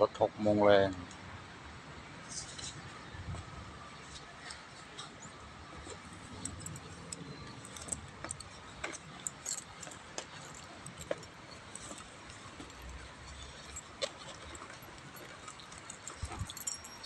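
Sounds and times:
light jingling: 4.0s - 17.0s.

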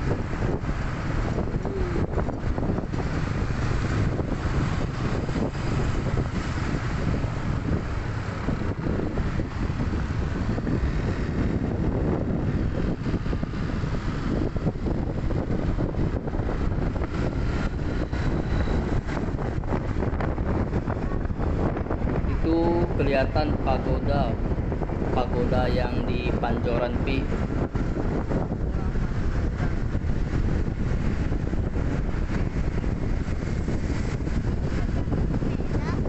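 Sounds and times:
engine and traffic noise: 0.0s - 36.0s
wind buffeting microphone: 0.0s - 36.0s.

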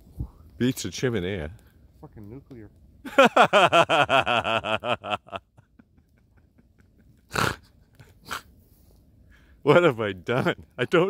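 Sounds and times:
man laughing: 3.0s - 8.4s.

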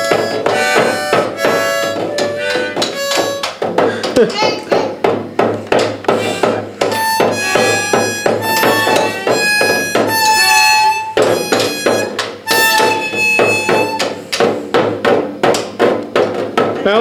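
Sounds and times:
children playing harmonicas: 0.0s - 3.6s, 6.1s - 14.2s
toy drum beaten with sticks: 0.0s - 17.0s.

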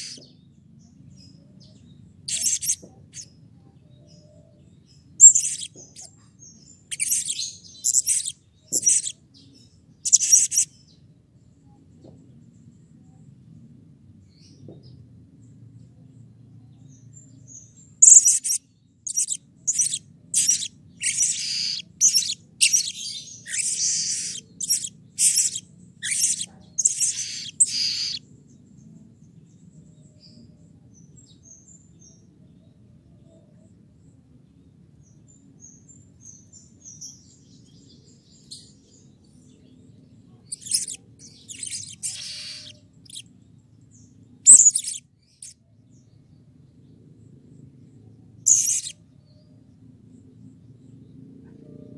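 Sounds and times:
faint bird chirps: 0.0s - 51.9s
parrot shrill calls: 19.8s - 28.2s, 40.7s - 43.2s.

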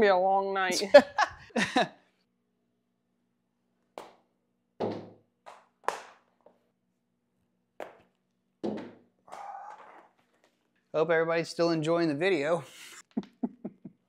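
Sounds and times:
ball bouncing on hard floor: 4.0s - 4.2s, 4.8s - 6.2s, 7.8s - 9.0s.

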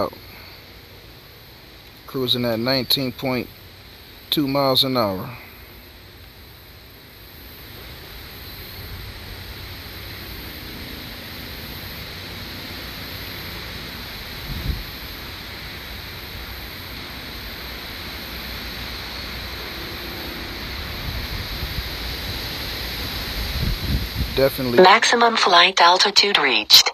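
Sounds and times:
wind blowing across microphone: 14.4s - 14.9s, 20.6s - 24.6s.

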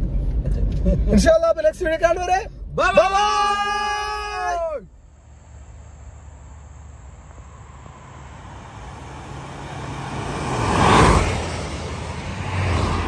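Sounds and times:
vehicle passing by: 5.2s - 13.0s.

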